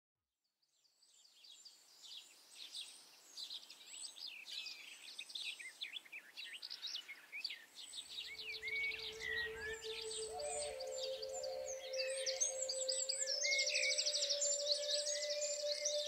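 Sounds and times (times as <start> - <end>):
songbirds singing: 0.7 - 16.0
low held tone: 8.4 - 16.0.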